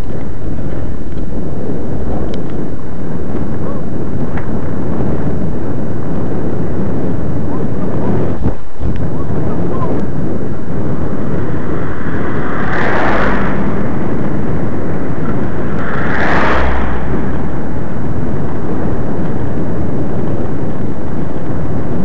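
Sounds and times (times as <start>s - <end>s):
wind buffeting microphone: 0.0s - 22.0s
car passing whoosh: 10.6s - 19.5s.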